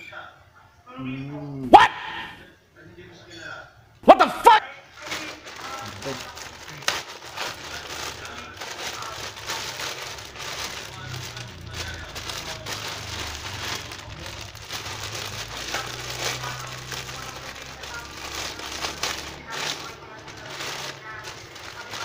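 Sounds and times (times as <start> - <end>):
plastic bag crinkling: 4.9 - 22.0.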